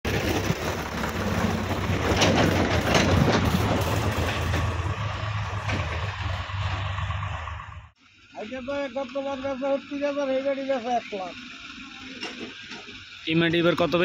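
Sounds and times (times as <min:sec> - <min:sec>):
diesel tractor engine running: 0:00.0 - 0:14.0
trolley rattling and clattering: 0:00.1 - 0:06.2.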